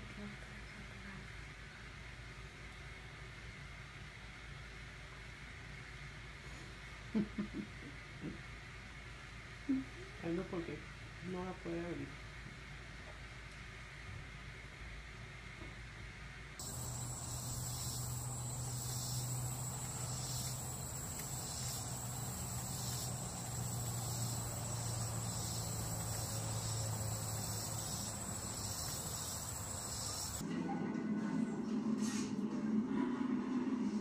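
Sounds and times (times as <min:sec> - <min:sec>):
high-pitched insect chirring: 0:16.6 - 0:30.4
low hum: 0:16.6 - 0:30.4.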